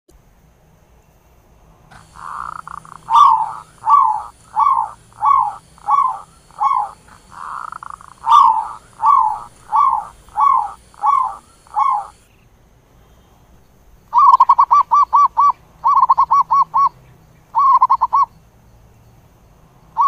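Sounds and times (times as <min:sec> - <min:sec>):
dove cooing: 0:01.9 - 0:12.3, 0:14.1 - 0:18.3.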